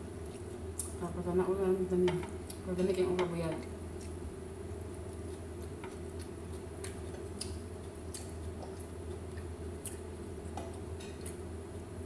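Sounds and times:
steady low hum: 0:00.0 - 0:12.0
eating clicks and squishes: 0:00.2 - 0:01.0, 0:05.0 - 0:11.4.

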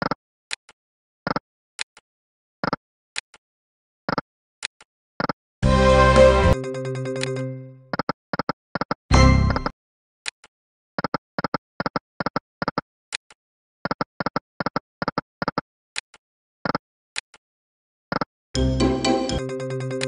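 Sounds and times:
electronic win jingle: 0:05.7 - 0:07.9, 0:09.1 - 0:09.7, 0:18.6 - 0:20.0
slot machine electronic ticks: 0:06.5 - 0:08.1, 0:18.6 - 0:20.0.

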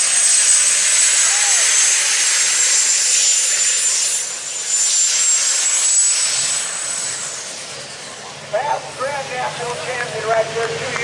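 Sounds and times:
turbocharger whistle: 0:00.0 - 0:08.2
loud rushing tractor exhaust: 0:00.0 - 0:11.0.

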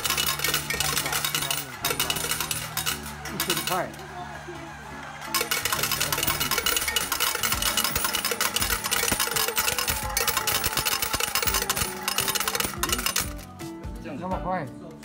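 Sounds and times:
coins clattering into metal tray: 0:00.0 - 0:03.8, 0:05.3 - 0:13.4.

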